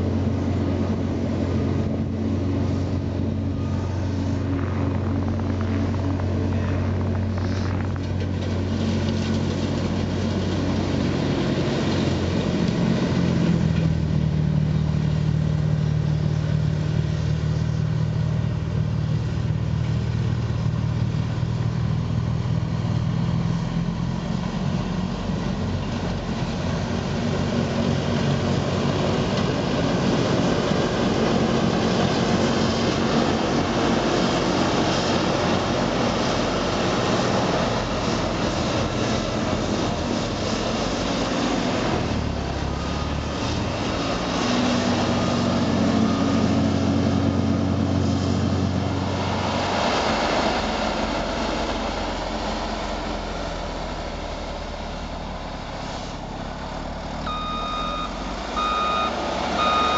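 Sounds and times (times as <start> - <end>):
snow blower throwing snow: 0.0 - 14.5
diesel engine running under load: 0.0 - 59.9.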